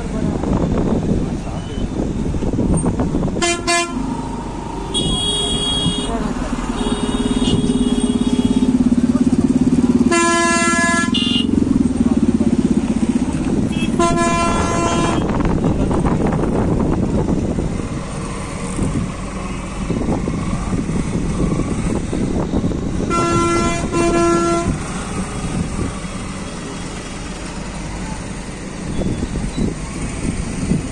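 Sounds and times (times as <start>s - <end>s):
traffic rumble: 0.0s - 30.9s
car horn honking: 3.3s - 4.1s, 4.8s - 8.9s, 10.0s - 11.6s, 13.6s - 15.8s, 23.0s - 24.8s.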